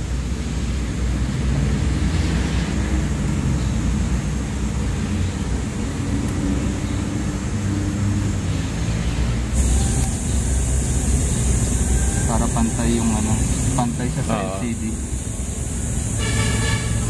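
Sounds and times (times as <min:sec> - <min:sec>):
vehicle engine rumble: 0:00.0 - 0:17.0
faint wavering hums: 0:09.4 - 0:17.0.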